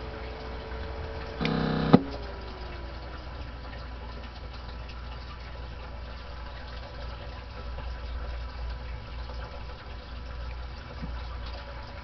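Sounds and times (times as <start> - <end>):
low hum: 0.0 - 4.6.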